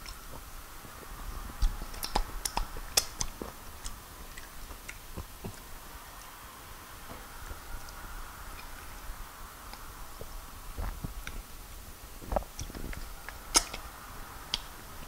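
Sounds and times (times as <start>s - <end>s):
wet chewing and lip smacks: 1.0s - 6.4s, 12.2s - 13.9s
sharp mouth clicks: 1.6s - 5.7s.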